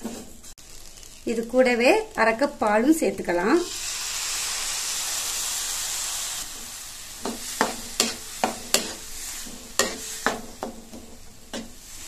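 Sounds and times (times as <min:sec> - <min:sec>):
milk sizzling in hot pan: 0:00.4 - 0:12.0
spatula scraping a pan: 0:06.5 - 0:12.0.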